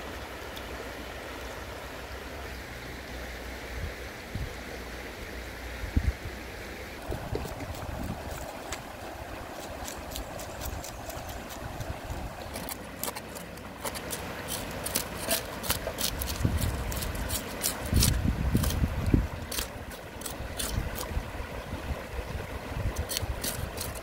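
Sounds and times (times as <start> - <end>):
river running: 0.0 - 24.0
cleaver scraping fish scales: 7.0 - 21.2, 22.9 - 24.0.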